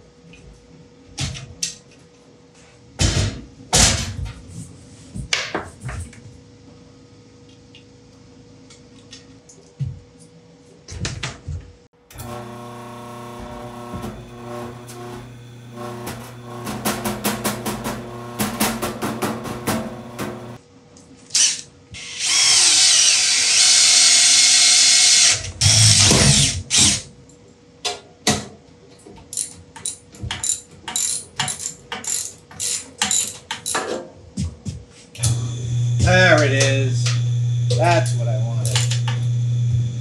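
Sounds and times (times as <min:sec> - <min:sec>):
cordless drill driving a bolt: 0:12.1 - 0:20.6, 0:21.4 - 0:27.0.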